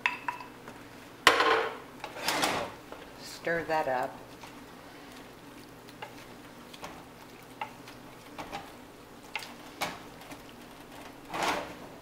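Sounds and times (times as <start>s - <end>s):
stirring stew in a pot: 2.0s - 11.4s.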